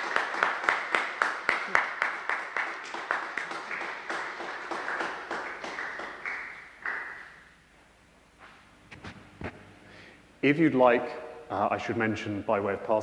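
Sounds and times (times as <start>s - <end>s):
congregation applauding: 0.0s - 7.5s.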